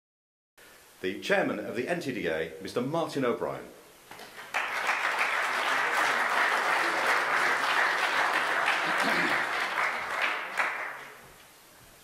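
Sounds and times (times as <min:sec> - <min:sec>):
audience applauding: 0:04.2 - 0:11.3.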